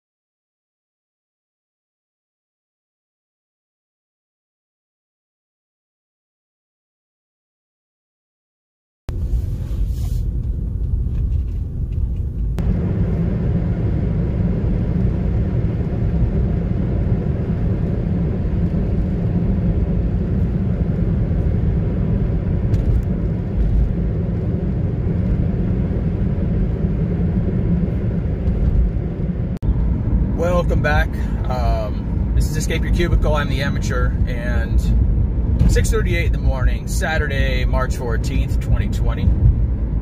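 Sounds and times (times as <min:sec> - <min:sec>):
car road rumble inside cabin: 0:09.1 - 0:40.0.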